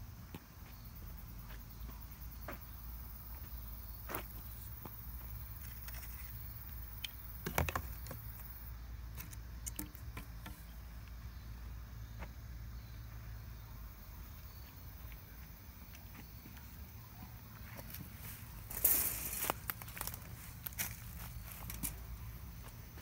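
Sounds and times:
footsteps on leaf litter: 17.7 - 22.7
twigs clicking and crackling: 18.7 - 22.0.

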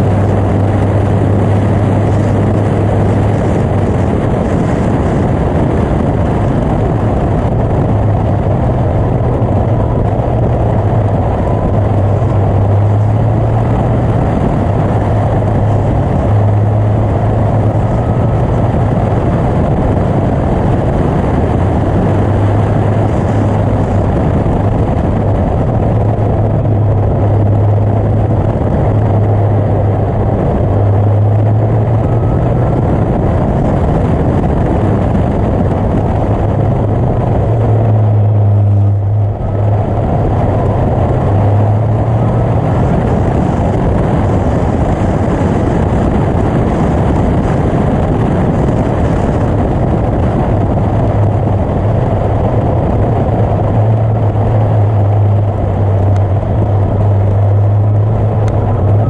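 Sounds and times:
car engine under load: 0.0 - 59.0
wind rushing: 0.0 - 59.0.

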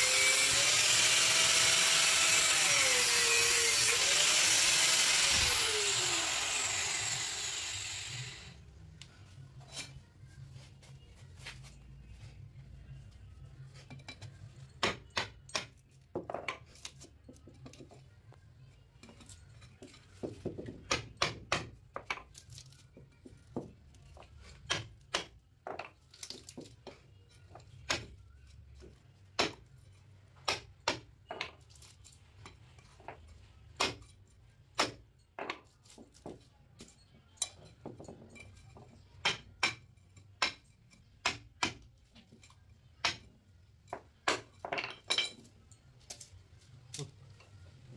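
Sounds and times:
hammer striking steel chisel: 39.2 - 41.8.

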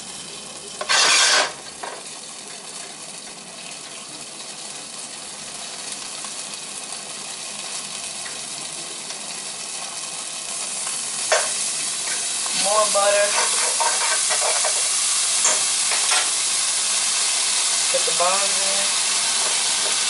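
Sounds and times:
butter sizzling in a skillet: 0.0 - 20.0
utensil scraping across pan: 0.8 - 1.6, 11.3 - 16.4.

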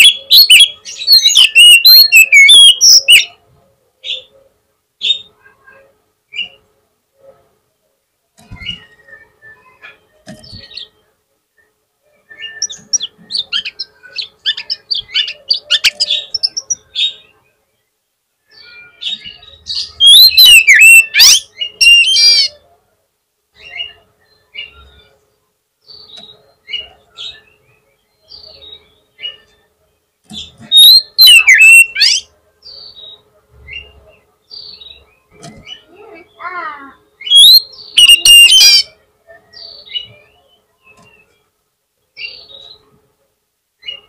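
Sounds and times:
bird chirps and whistles: 0.0 - 3.3, 12.3 - 13.7, 20.0 - 22.5, 30.7 - 32.2, 37.2 - 38.9.

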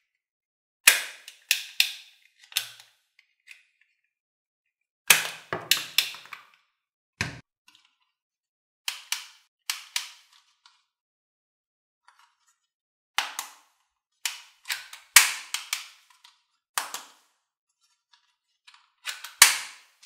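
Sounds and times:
toy guns firing sharp cracks: 0.9 - 2.0, 14.3 - 15.9, 19.1 - 19.9.

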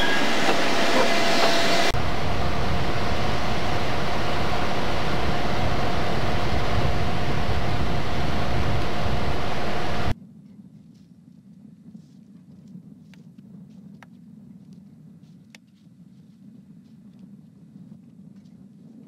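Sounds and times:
diesel locomotive passing: 0.0 - 10.1
low locomotive rumble: 0.0 - 10.2
thin steady whine: 0.0 - 10.2.

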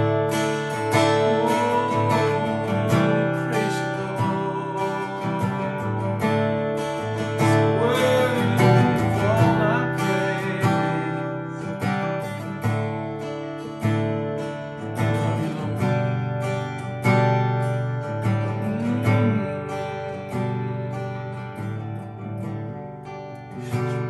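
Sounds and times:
man singing: 0.0 - 12.5, 15.0 - 16.1, 18.2 - 20.8
acoustic guitar strumming: 0.0 - 24.0.

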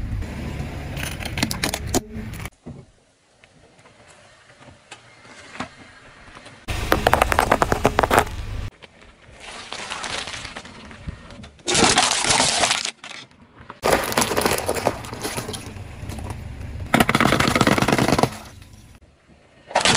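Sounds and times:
tyre crushing objects: 6.7 - 8.7, 13.8 - 18.7.

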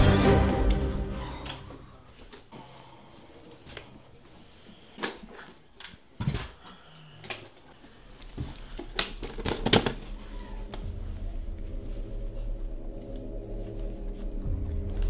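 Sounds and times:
low hum: 10.0 - 15.0.

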